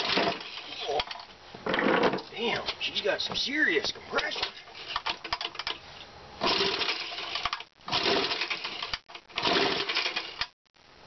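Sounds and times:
pull-starter cranking engine: 0:00.0 - 0:02.0, 0:04.3 - 0:05.8, 0:06.4 - 0:10.5.

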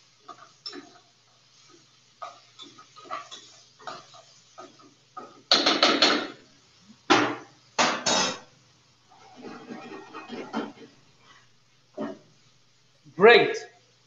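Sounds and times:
spoon stirring in metal pot: 0:09.1 - 0:11.0.

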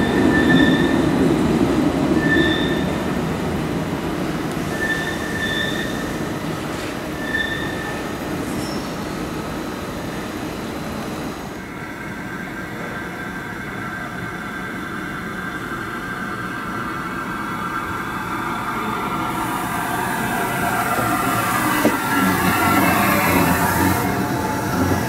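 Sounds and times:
train wheels squealing: 0:00.0 - 0:01.2, 0:02.1 - 0:03.1, 0:04.6 - 0:09.2
train rumbling into station: 0:00.0 - 0:25.0
train whine: 0:00.0 - 0:25.0.

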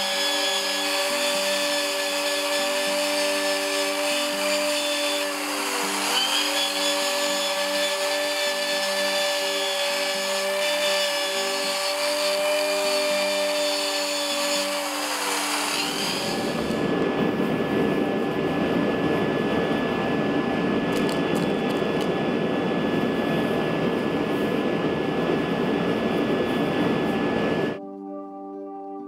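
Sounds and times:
electric drill whining: 0:00.0 - 0:16.9.

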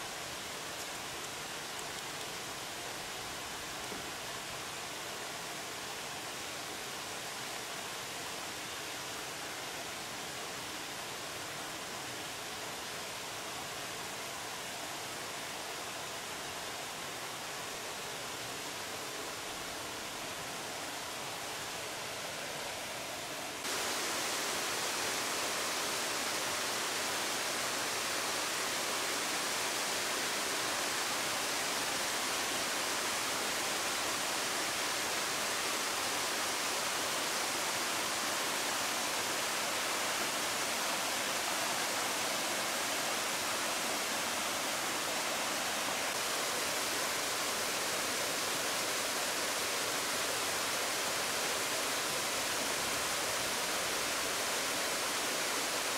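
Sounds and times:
waterfalls rushing into pool: 0:00.0 - 0:55.9.

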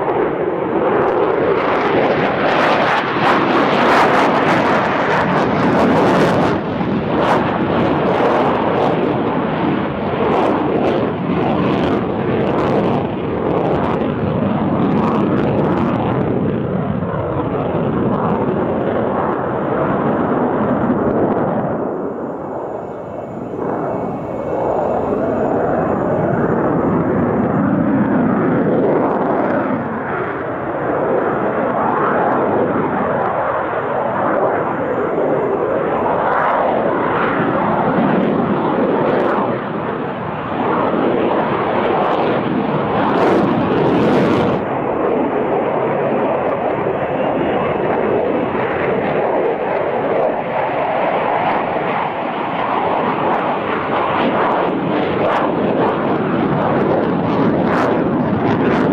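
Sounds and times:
fighter jet roar: 0:00.0 - 0:58.9.

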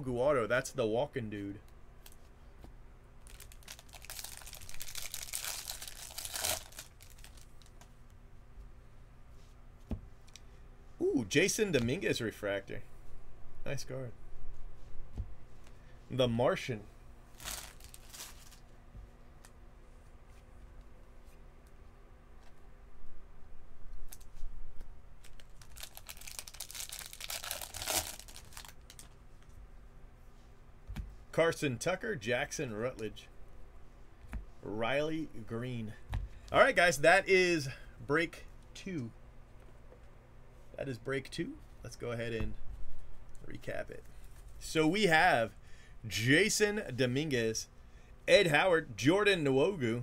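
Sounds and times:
wrapper tearing and crinkling: 0:03.2 - 0:07.7, 0:17.3 - 0:18.6, 0:25.2 - 0:29.2.

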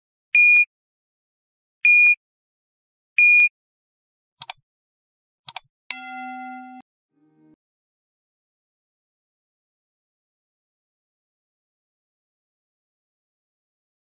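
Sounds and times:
mouse clicks: 0:04.4 - 0:04.6
bright ding: 0:05.9 - 0:06.9.

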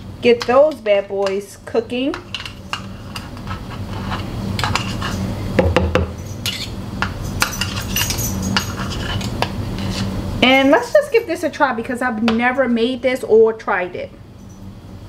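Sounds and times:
steady low hum: 0:00.0 - 0:15.0
metal utensil scraping a dish: 0:02.1 - 0:05.3, 0:06.3 - 0:10.2.

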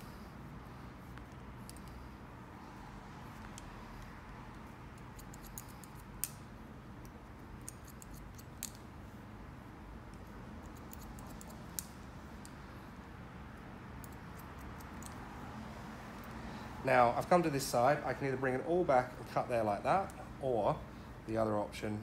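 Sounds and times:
low steady hum: 0:00.0 - 0:22.0
scissors snipping hair: 0:03.4 - 0:06.4, 0:07.0 - 0:08.8, 0:10.1 - 0:12.6, 0:14.0 - 0:15.3.

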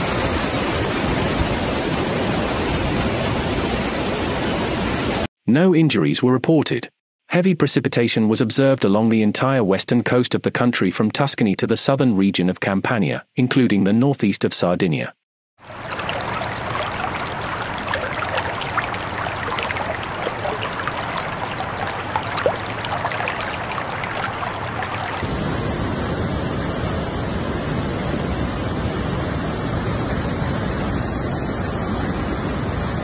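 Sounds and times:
rushing floodwater: 0:15.6 - 0:25.2.

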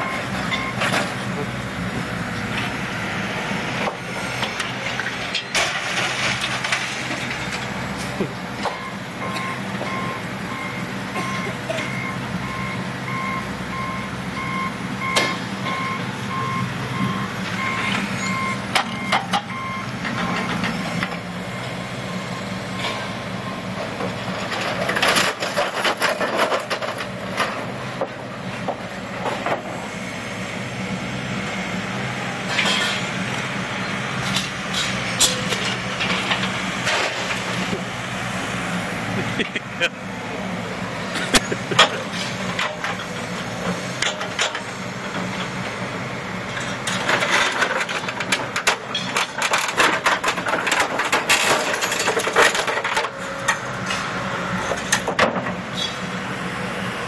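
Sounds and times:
back-up alarm beeping: 0:00.0 - 0:00.8, 0:08.7 - 0:20.6
heavy machinery humming: 0:00.0 - 0:57.0
scrap metal clanking: 0:32.5 - 0:33.1.

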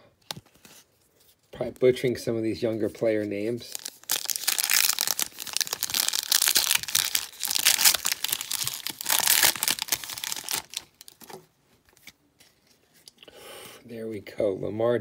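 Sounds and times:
foil wrapper tearing and crinkling: 0:03.7 - 0:11.4.

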